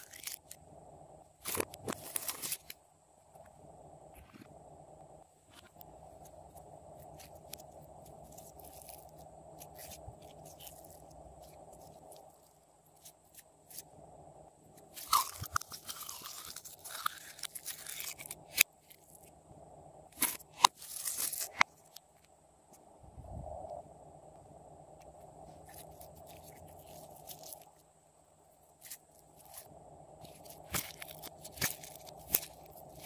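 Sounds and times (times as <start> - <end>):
sticky slime crackling: 15.0 - 19.1, 30.2 - 33.0.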